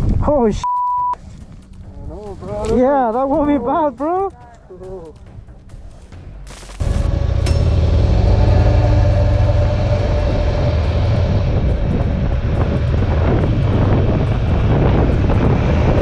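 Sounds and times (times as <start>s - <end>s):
motorcycle engine rumble: 6.8s - 16.0s.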